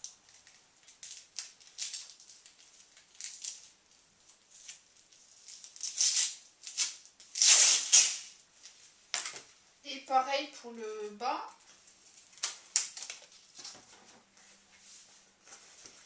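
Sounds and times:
velcro strips rustling and scraping: 0:00.0 - 0:09.4.

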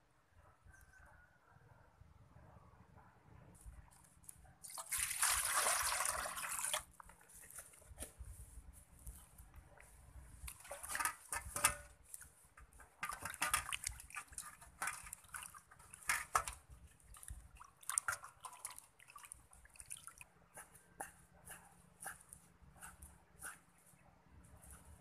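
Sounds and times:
water splashing in a metal basin: 0:04.6 - 0:07.0, 0:12.8 - 0:20.3.

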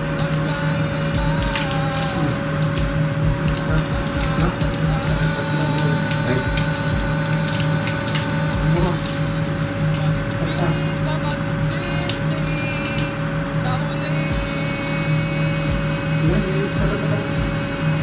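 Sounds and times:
clicks and taps on pipes: 0:00.0 - 0:14.1
pool pump humming: 0:00.0 - 0:18.0
water rushing through pipes: 0:00.0 - 0:18.0.

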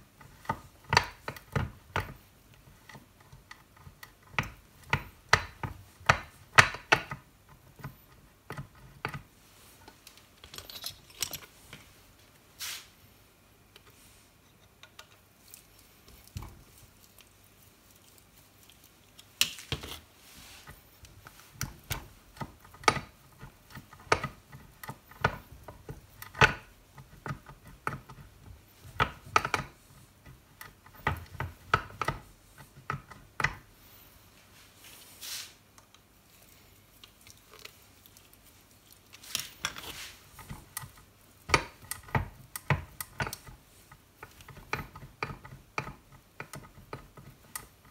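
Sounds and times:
metal parts clicking and clinking: 0:10.1 - 0:11.6.

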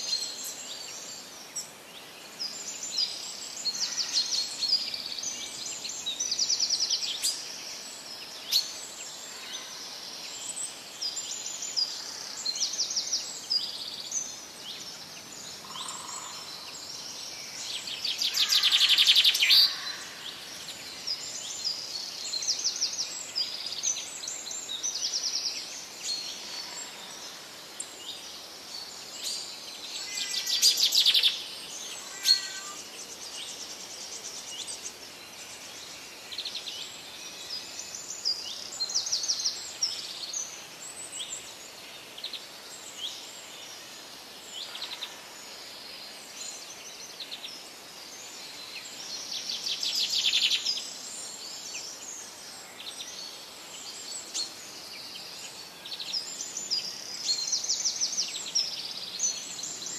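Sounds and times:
small birds chirping and trilling: 0:00.0 - 0:59.9
steady background hiss: 0:00.0 - 0:59.9
loud rapid bird trills: 0:32.0 - 0:32.8.

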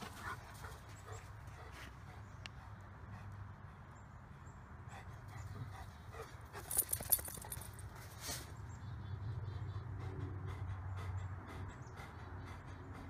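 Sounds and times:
metal collar tag jingling: 0:06.5 - 0:08.2.

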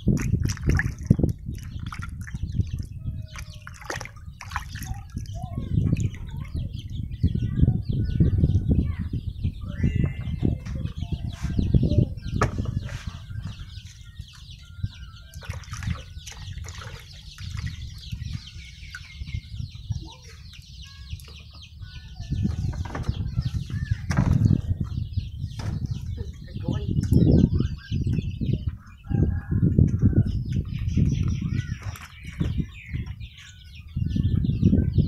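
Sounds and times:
water sloshing and splashing: 0:00.0 - 0:06.7, 0:15.3 - 0:19.2
high bird chirps: 0:00.0 - 0:35.0.

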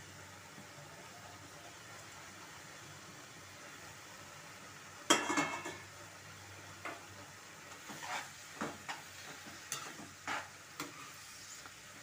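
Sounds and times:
vegetables sizzling: 0:00.0 - 0:12.0
metal spatula clanging on pan: 0:05.1 - 0:05.8, 0:09.7 - 0:11.0
spatula scraping pan: 0:07.7 - 0:11.7.

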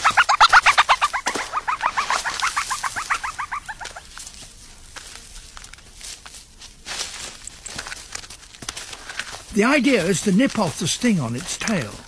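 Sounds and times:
meerkat chirping calls: 0:00.0 - 0:04.1.

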